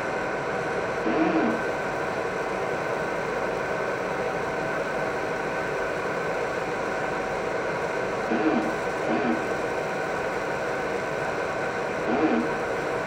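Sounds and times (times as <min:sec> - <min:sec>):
laser marking machine whirring: 0:01.0 - 0:01.8, 0:08.2 - 0:13.0.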